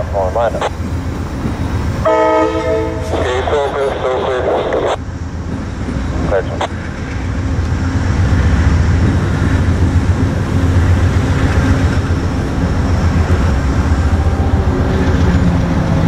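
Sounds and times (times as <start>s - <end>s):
low engine rumble: 0.0s - 16.0s.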